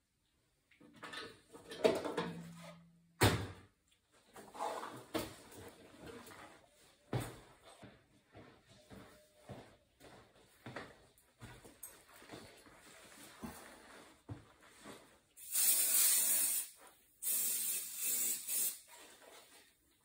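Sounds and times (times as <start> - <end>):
rustling and scraping: 4.1 - 7.0, 11.5 - 15.4, 18.9 - 20.0.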